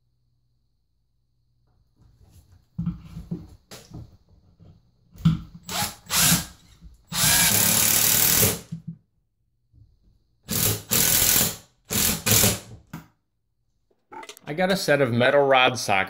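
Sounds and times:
cordless drill driving a screw: 0:05.6 - 0:08.6, 0:10.5 - 0:12.6.

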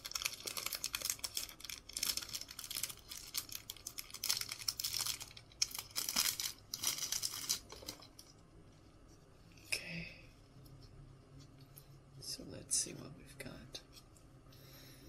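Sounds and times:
cellophane wrapper crinkling: 0:00.0 - 0:08.4.

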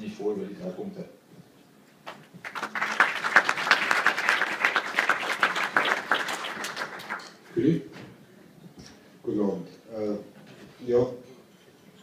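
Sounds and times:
room of people applauding: 0:02.0 - 0:07.4.

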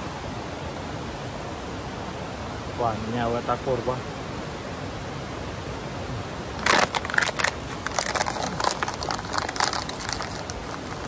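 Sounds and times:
waterfall rushing: 0:00.0 - 0:11.0
sharp crackles and clicks: 0:06.6 - 0:11.0.

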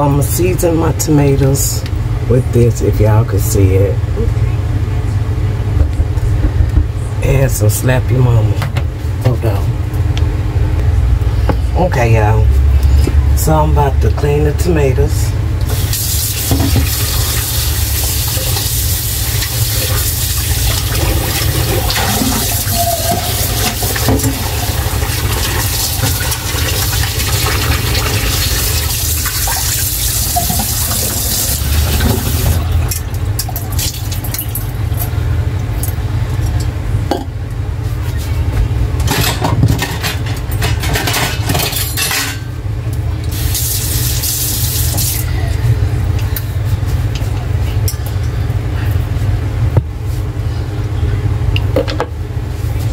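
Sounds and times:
running water splashing: 0:15.7 - 0:34.4.

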